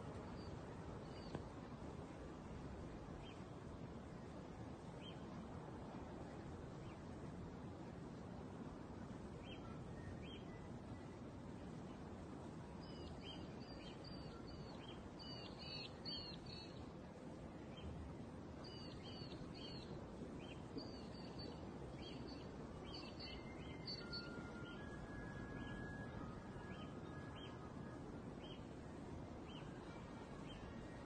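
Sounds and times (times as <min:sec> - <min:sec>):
faint outdoor hiss: 0:00.0 - 0:31.0.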